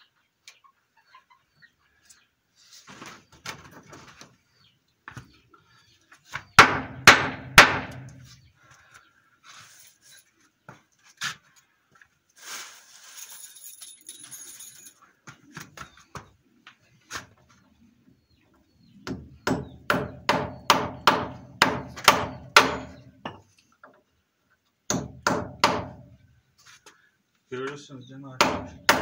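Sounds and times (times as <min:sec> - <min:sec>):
hammer driving nails into wood: 0:06.6 - 0:08.2, 0:19.1 - 0:23.0, 0:24.9 - 0:26.0, 0:28.4 - 0:29.0.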